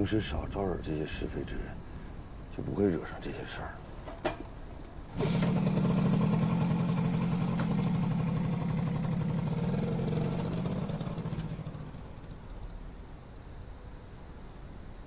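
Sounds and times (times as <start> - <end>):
motorcycle engine starting and running: 4.0 - 13.2.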